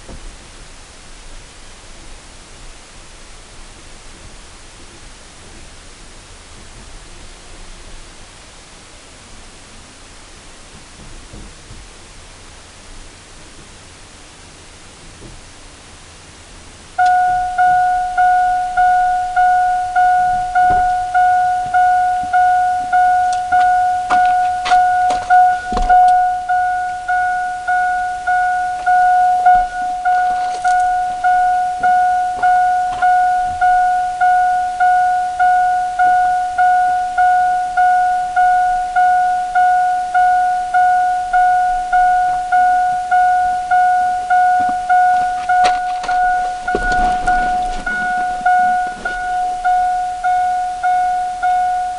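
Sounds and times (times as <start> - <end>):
vehicle warning chime: 17.0 - 51.9
handling clicks and knocks: 44.6 - 49.4.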